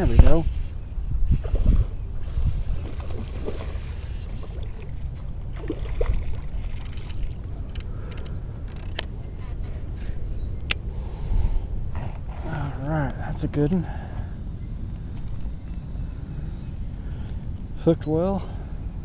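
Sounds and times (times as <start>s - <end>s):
wind rumble: 0.0s - 19.0s
water splashing: 1.4s - 7.8s.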